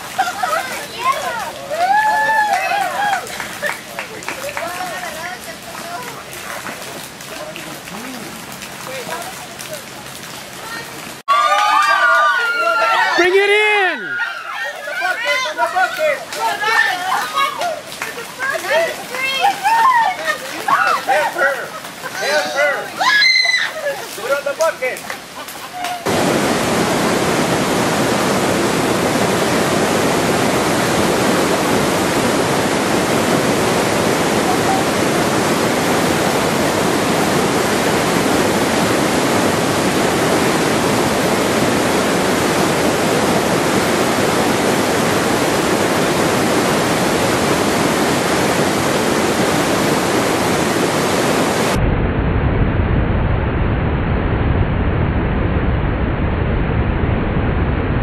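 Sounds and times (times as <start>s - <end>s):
rushing stream water: 0.0s - 51.8s
dull low rumbling noise: 51.7s - 58.0s.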